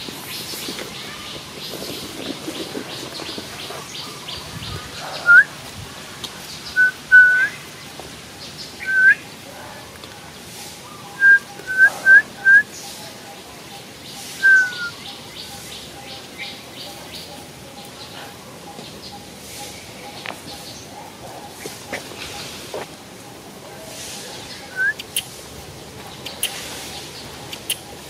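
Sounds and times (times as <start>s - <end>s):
bird whistling: 5.2s - 5.5s, 6.8s - 7.6s, 8.8s - 9.2s, 11.1s - 12.7s, 14.4s - 15.0s, 24.7s - 25.3s.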